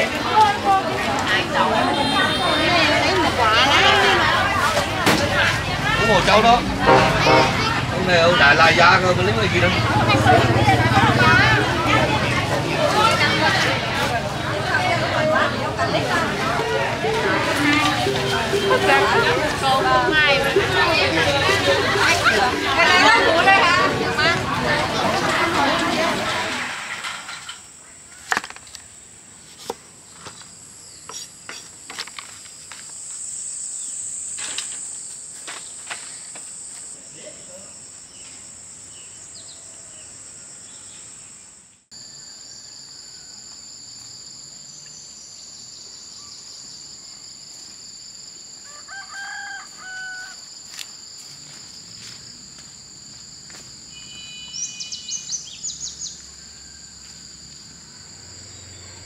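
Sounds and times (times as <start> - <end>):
insects buzzing: 28.6 - 59.0
bird chirping: 54.0 - 56.4.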